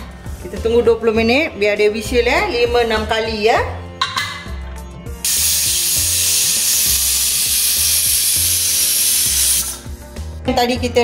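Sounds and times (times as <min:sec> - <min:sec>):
faint music with steady beat: 0:00.0 - 0:11.0
pressure cooker steam hissing: 0:05.2 - 0:09.9.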